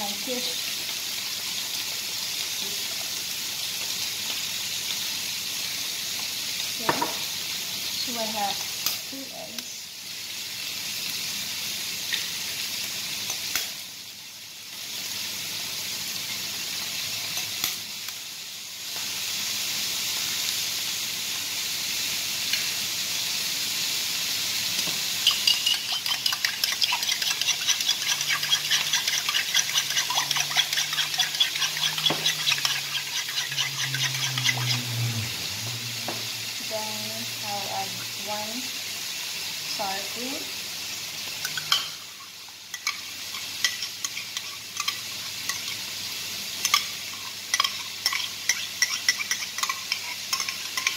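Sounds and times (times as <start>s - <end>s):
onions sizzling in a frying pan: 0.0s - 50.9s
eggs cracked with a spoon: 25.2s - 34.0s
spoon beating eggs in plastic bowl: 25.3s - 34.7s.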